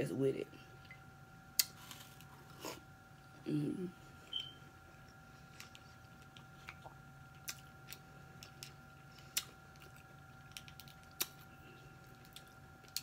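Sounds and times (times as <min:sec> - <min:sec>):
faint electrical hum: 0:00.0 - 0:13.0
seafood shells cracking: 0:07.4 - 0:11.5.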